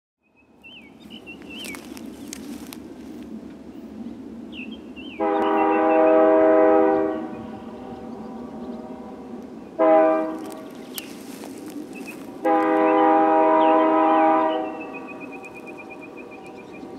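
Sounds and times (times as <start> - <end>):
locomotive air horn blasts: 5.2 - 10.6, 12.4 - 15.2.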